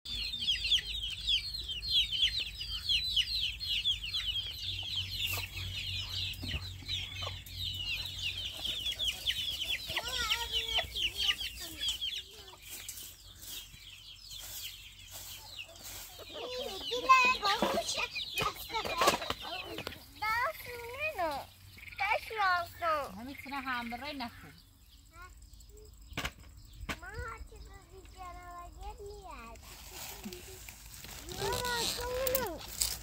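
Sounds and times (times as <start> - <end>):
chicken clucking: 0.1 - 22.4
chickens chirping: 0.1 - 33.0.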